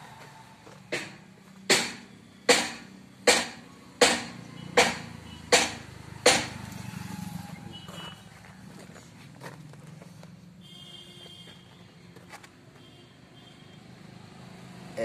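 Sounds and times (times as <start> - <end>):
hammer striking metal: 0.9 - 6.6.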